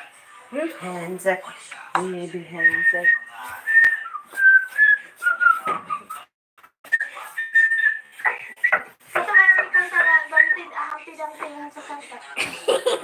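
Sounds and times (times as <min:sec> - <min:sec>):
person whistling a tune: 0:02.6 - 0:06.3, 0:06.9 - 0:10.6.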